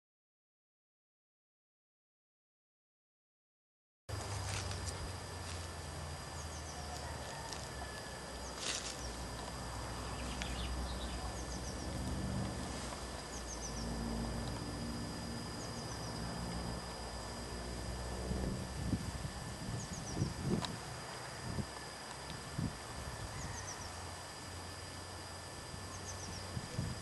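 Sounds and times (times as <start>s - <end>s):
small birds singing trills: 10.0s - 12.0s, 13.3s - 13.9s, 19.7s - 20.5s, 23.2s - 24.0s, 25.9s - 26.6s.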